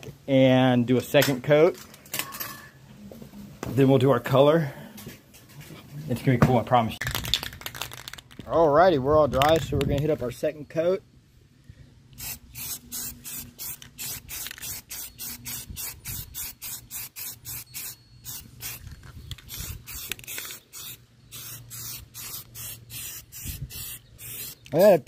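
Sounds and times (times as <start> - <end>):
spray paint can hissing bursts: 12.2 - 24.9.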